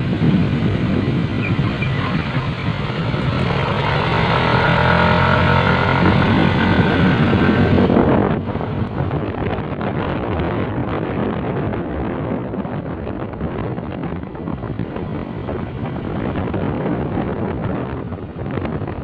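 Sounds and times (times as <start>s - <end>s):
vehicle engine running: 0.0s - 10.5s
road and wind noise: 0.0s - 19.0s.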